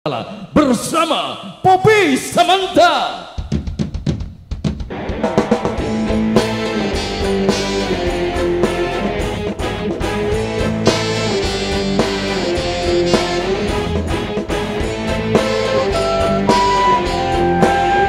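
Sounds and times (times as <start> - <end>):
band playing instrumental music: 3.6 - 18.0.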